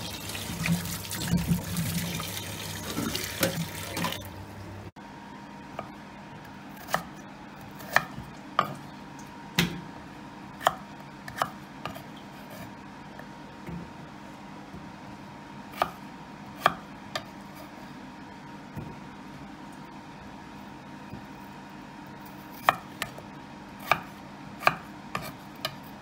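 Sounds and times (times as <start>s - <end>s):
tap water running into sink: 0.0s - 4.4s.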